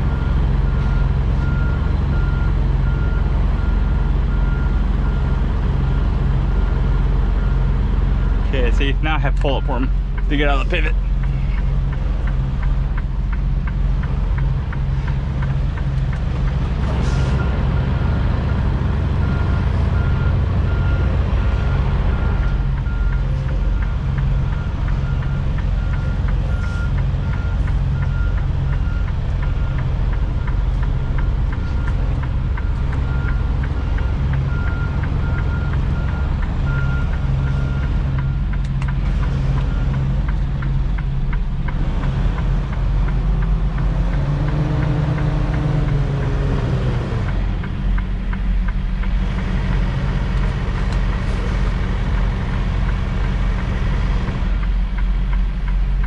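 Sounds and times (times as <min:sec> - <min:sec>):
diesel truck engine running: 0:00.0 - 0:56.0
reversing alarm beeping: 0:19.1 - 0:38.5.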